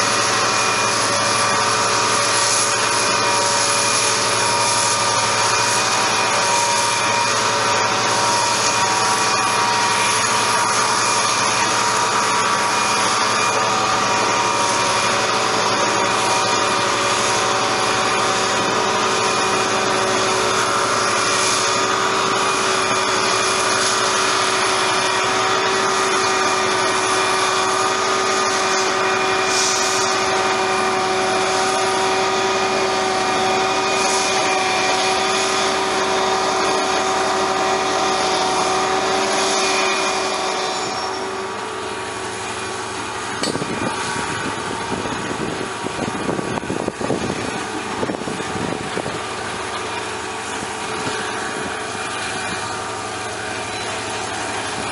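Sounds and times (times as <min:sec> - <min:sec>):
locomotive engine whining: 0:00.0 - 0:54.9
train rumble with clatter: 0:00.0 - 0:54.9.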